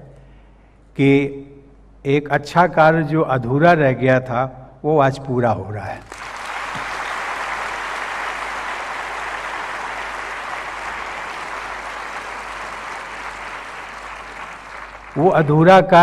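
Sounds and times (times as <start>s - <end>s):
audience applauding: 6.0s - 15.6s.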